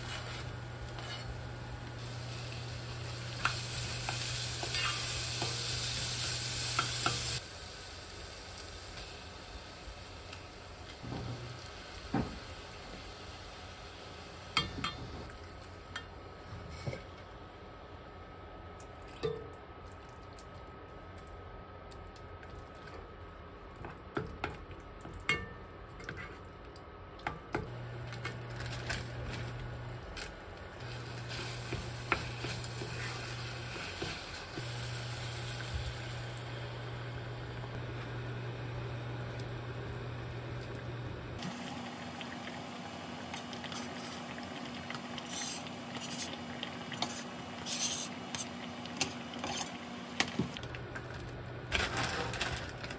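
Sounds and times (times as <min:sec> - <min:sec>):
knife scraping cutting board: 0:00.0 - 0:01.3
sauce sizzling in a pot: 0:01.9 - 0:15.2, 0:30.8 - 0:40.2.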